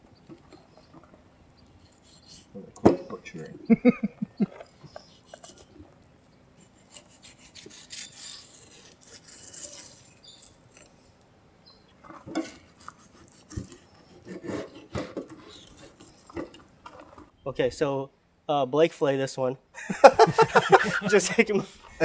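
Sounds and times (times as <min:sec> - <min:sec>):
knife scraping fish fillet: 0:01.8 - 0:02.6, 0:04.9 - 0:05.7, 0:06.6 - 0:11.0, 0:12.3 - 0:17.2.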